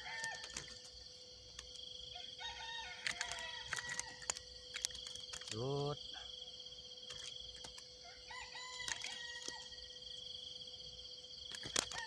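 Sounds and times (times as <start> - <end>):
distant rooster crowing: 0.0 - 0.7, 2.0 - 4.4, 8.0 - 10.0
high-pitched insect chorus: 0.0 - 12.0.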